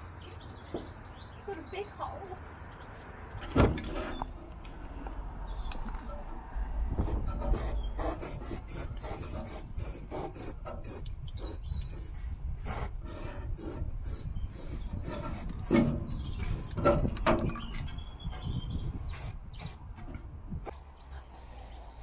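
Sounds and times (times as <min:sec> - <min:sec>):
spray-paint can hissing: 0:07.6 - 0:15.5, 0:19.0 - 0:19.9.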